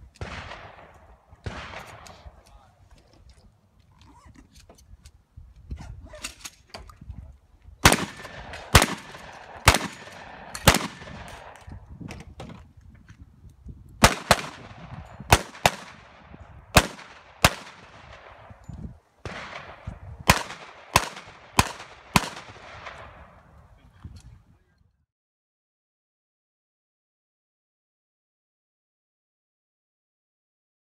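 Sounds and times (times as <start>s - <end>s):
gunshots: 0.2s - 2.4s, 7.8s - 11.6s, 14.0s - 18.6s, 19.2s - 23.3s.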